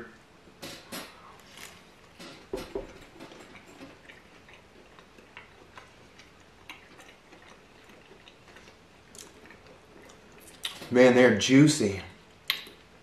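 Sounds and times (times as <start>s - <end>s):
chewing clicks: 3.4s - 10.8s, 12.4s - 13.0s.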